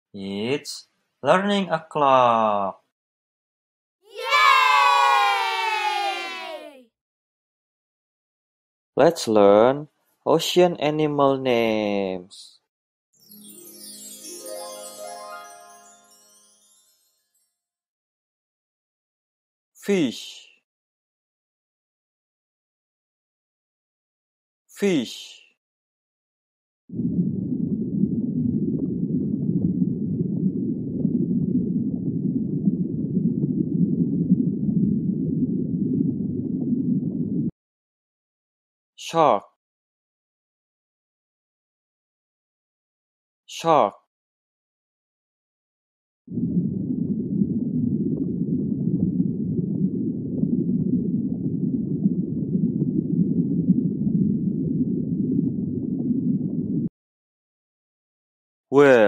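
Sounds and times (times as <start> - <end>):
muffled underwater rumble and gurgle: 26.9 - 37.5, 46.3 - 56.9.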